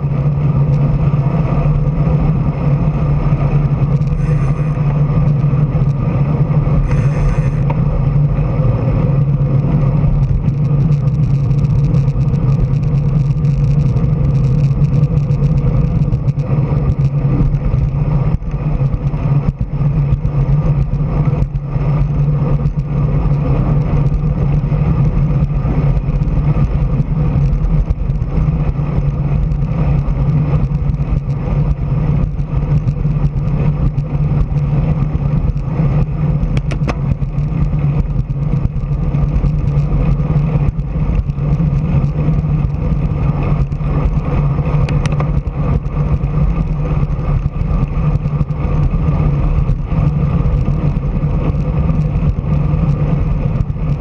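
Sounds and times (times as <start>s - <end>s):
vehicle driving on road: 0.0s - 54.0s
wind on microphone: 0.0s - 54.0s.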